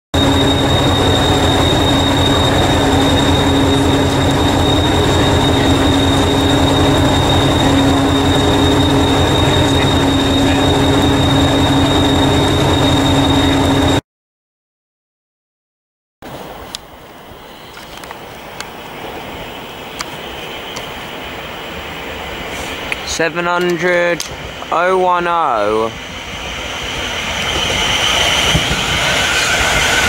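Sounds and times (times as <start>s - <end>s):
diesel train engine idling: 0.2s - 14.0s.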